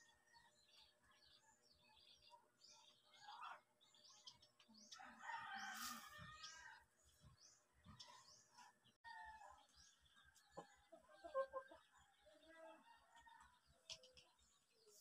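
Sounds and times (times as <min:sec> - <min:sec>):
small birds chirping: 0:00.0 - 0:15.0
rooster crowing faintly: 0:05.0 - 0:06.8.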